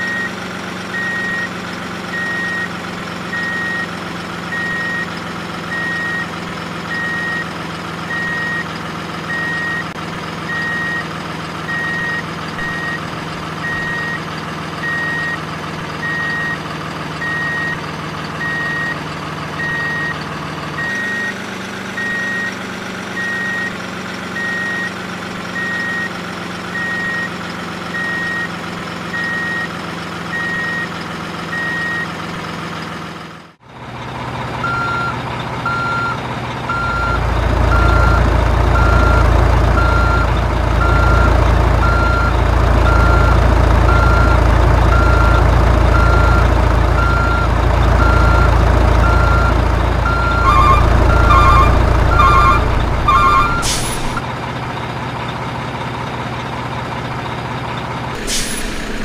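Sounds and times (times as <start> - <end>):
reversing alarm beeping: 0.0 - 1.5, 2.1 - 2.7, 3.3 - 7.5, 8.1 - 11.1, 11.7 - 13.0, 13.6 - 15.4, 16.0 - 16.6, 17.2 - 17.8, 18.4 - 19.0, 19.6 - 20.2, 20.8 - 21.4, 22.0 - 22.6, 29.1 - 32.2, 34.6 - 54.2
truck engine running: 0.0 - 59.0.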